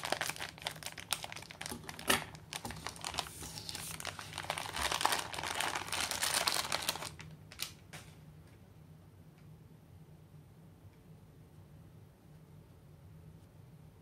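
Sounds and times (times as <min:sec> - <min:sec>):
plastic packet crinkling: 0:00.0 - 0:08.0.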